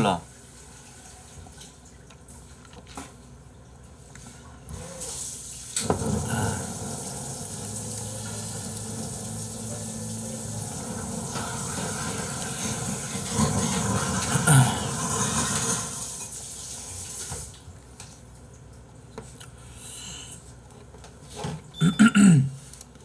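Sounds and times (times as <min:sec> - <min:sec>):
liquid pouring: 0:05.0 - 0:17.4.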